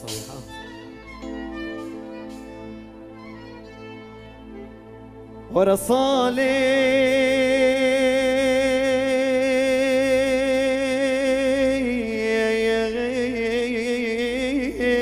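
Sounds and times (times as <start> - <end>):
man singing long note with vibrato: 5.4 - 15.0.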